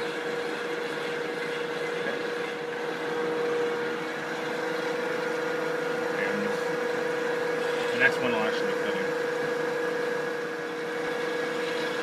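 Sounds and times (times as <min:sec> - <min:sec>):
metal lathe humming: 0:00.0 - 0:12.0.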